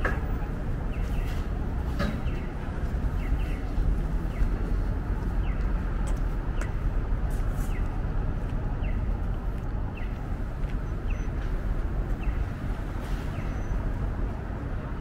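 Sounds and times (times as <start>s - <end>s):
traffic rumble: 0.0s - 15.0s
pedestrian crossing signal chirp: 8.7s - 14.0s.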